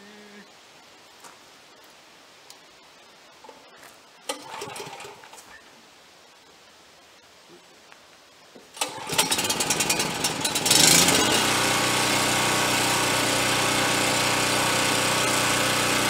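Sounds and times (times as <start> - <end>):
portable generator engine running: 4.3 - 5.2, 8.8 - 16.0.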